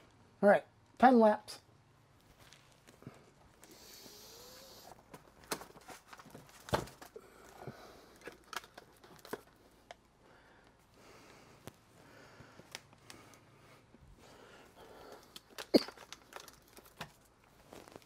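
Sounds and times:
clicks and knocks of objects handled: 5.1s - 10.0s, 15.0s - 18.0s.

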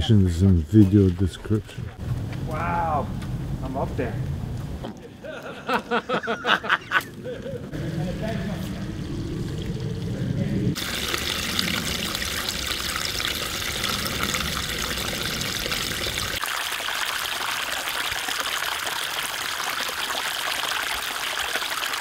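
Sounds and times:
low rumble: 7.2s - 16.4s
stream water running: 7.7s - 22.0s.

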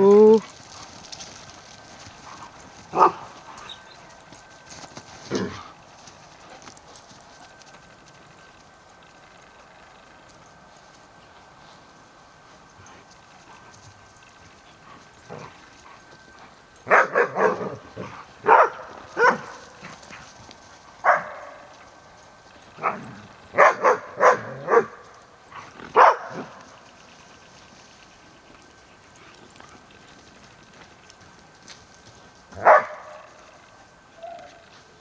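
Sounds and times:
dog barking: 2.9s - 3.3s, 16.9s - 17.8s, 18.4s - 19.6s, 21.0s - 21.6s, 23.6s - 25.0s, 26.0s - 26.5s, 32.6s - 33.3s.

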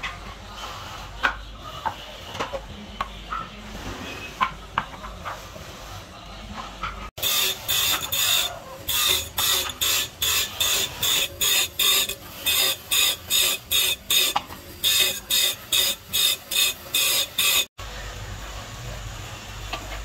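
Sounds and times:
saw teeth grinding on wheel: 7.2s - 17.7s.

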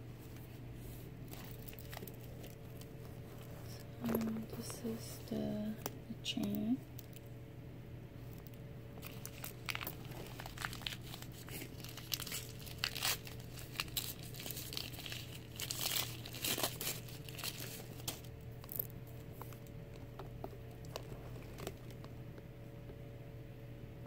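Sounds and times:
protective wrapping crinkling: 1.2s - 5.5s, 8.3s - 22.2s.

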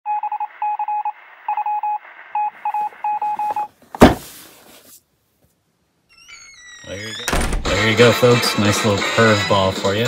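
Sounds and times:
morse code beeps: 0.1s - 3.7s
faint radio hiss: 0.4s - 5.9s.

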